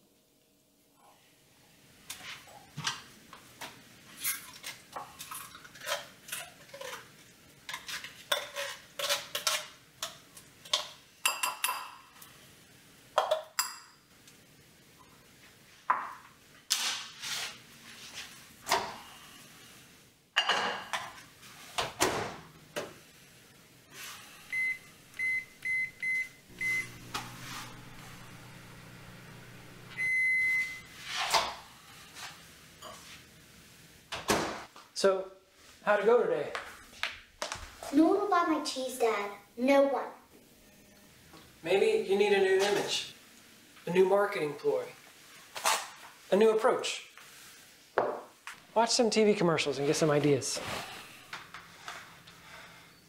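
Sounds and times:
microwave oven humming: 24.0 - 32.1
microwave keypad beeps: 24.5 - 27.0, 29.9 - 30.9
long microwave beep: 24.5 - 27.2, 29.9 - 30.9.

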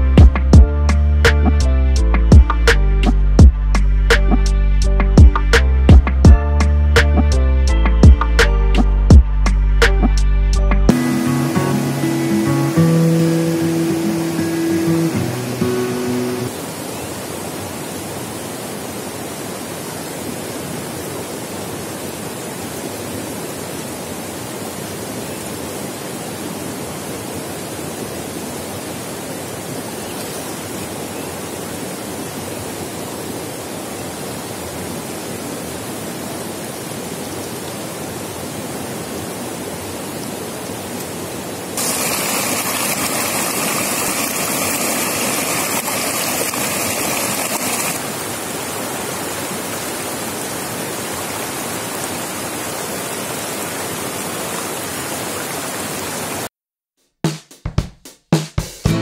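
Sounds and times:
river running over stones: 10.9 - 56.5.

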